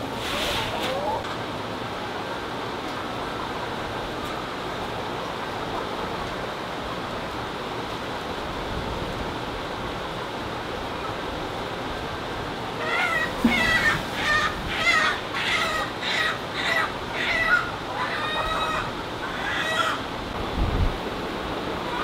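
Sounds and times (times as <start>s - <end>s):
hens clucking: 12.8s - 20.2s.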